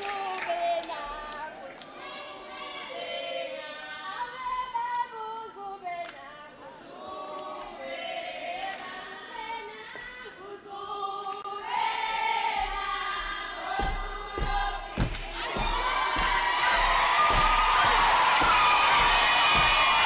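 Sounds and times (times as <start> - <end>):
group of voices singing: 0.0 - 20.0
dull thumps: 12.6 - 20.0
people cheering: 15.0 - 20.0.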